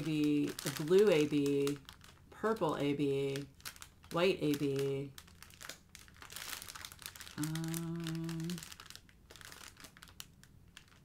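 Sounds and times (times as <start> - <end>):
plastic wrapping crinkling: 0.0 - 11.0
person humming: 7.4 - 8.6.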